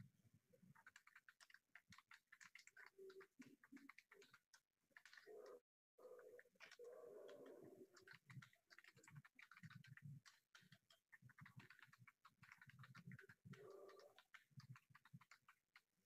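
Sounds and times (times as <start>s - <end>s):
keyboard typing: 0.7s - 16.0s.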